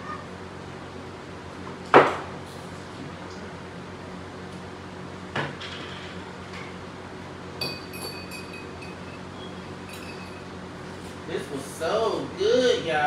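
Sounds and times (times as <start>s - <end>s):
steady low hum: 0.0s - 13.0s
dishes and utensils clinking: 7.6s - 10.5s.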